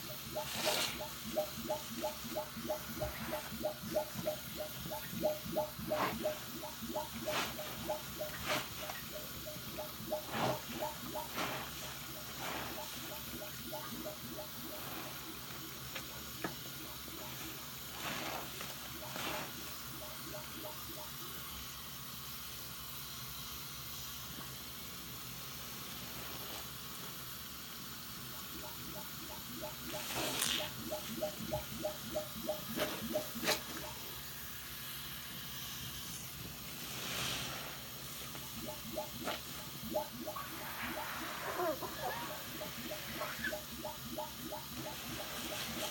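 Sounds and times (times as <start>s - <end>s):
running tap hiss: 0.0s - 45.9s
sponge squishing in suds: 2.8s - 20.4s, 36.0s - 45.9s.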